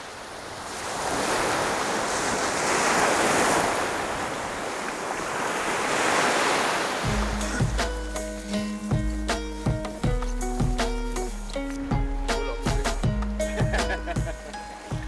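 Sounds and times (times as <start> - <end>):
sea surf breaking on beach: 0.0 - 8.7
music with bass and beat: 7.1 - 15.0.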